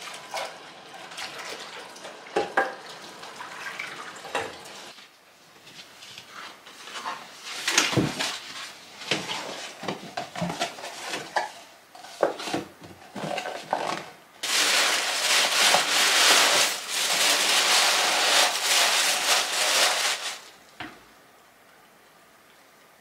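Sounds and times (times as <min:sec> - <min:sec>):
paper boxes tapping and rustling: 0:07.0 - 0:20.4
tissue paper crinkling: 0:14.4 - 0:20.6.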